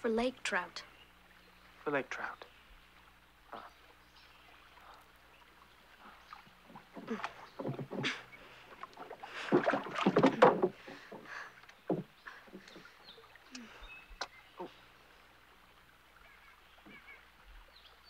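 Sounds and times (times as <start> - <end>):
wooden rowboat knocking: 6.6 - 13.0.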